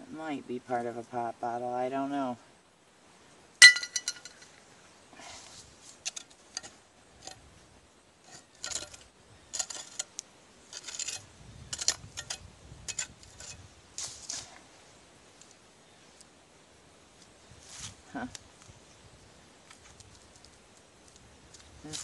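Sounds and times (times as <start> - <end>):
broken glass clinking: 3.6 - 4.4
tool scraping through soil: 8.2 - 14.7.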